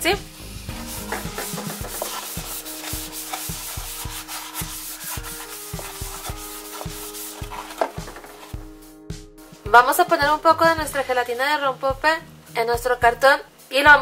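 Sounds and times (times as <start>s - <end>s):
fingers rubbing cardboard carton: 1.0s - 8.5s
carton knocking: 1.0s - 8.6s.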